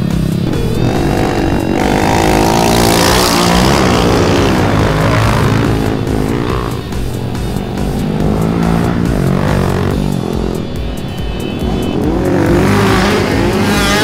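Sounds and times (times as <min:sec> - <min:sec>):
motorcycle engines revving past: 0:00.0 - 0:14.0.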